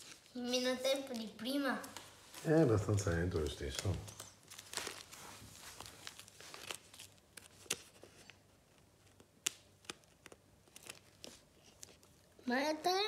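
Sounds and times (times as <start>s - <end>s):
paper crinkling and ticking: 0.0s - 12.3s.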